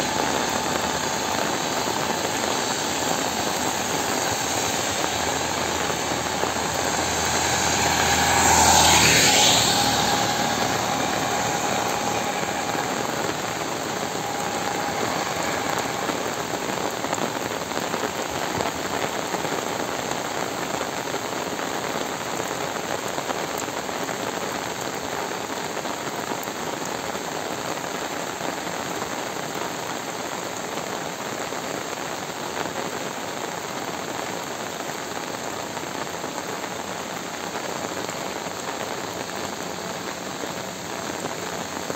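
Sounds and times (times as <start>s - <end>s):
vehicle passing: 0.0s - 19.6s
heavy rain falling: 0.0s - 41.9s.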